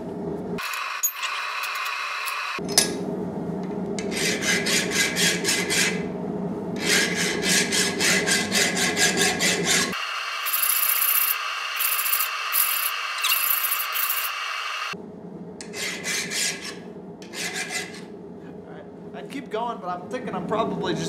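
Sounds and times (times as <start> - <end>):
file rasping on steel blade: 4.0 - 6.0, 6.8 - 14.3, 15.6 - 18.1.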